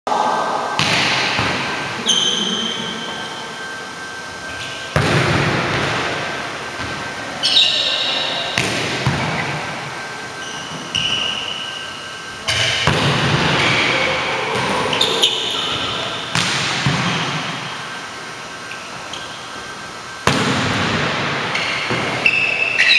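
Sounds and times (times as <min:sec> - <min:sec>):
volleyballs bouncing on gym floor: 0:00.8 - 0:02.4, 0:04.6 - 0:07.1, 0:08.5 - 0:09.8, 0:12.4 - 0:17.9, 0:20.2 - 0:22.3
sneaker squeaks on floor: 0:02.0 - 0:03.3, 0:06.8 - 0:09.6, 0:10.4 - 0:12.8, 0:14.6 - 0:16.5, 0:18.6 - 0:19.5, 0:21.5 - 0:22.9.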